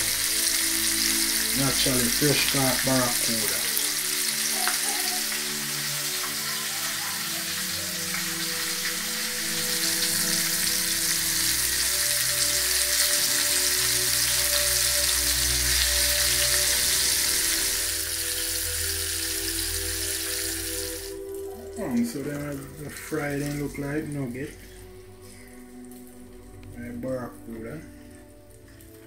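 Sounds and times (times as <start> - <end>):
fish deep-frying in oil: 0.0 - 23.7.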